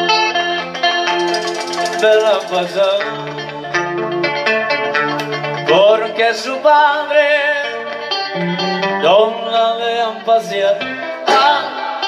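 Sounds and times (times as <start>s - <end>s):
plucked guitar: 0.0s - 12.0s
person singing with vibrato: 1.6s - 3.8s, 8.5s - 12.0s.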